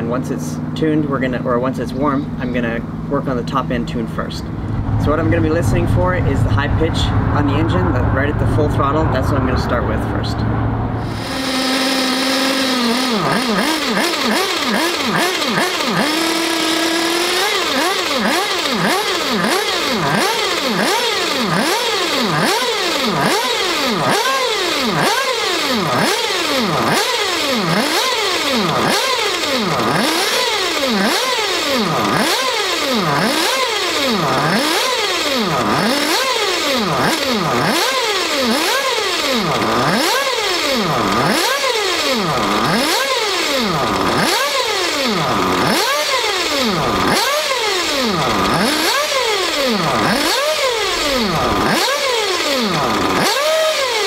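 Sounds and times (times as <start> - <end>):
model engine revving: 11.0 - 54.0.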